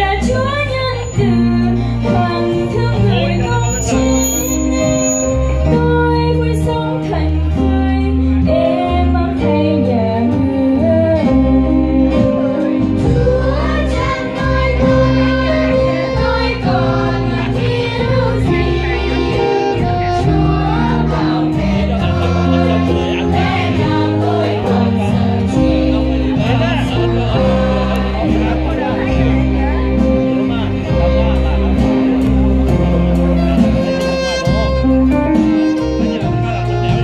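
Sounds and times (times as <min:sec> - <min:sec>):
sustained low instrumental notes: 0:00.0 - 0:37.0
children's choir singing a hymn: 0:12.1 - 0:32.8.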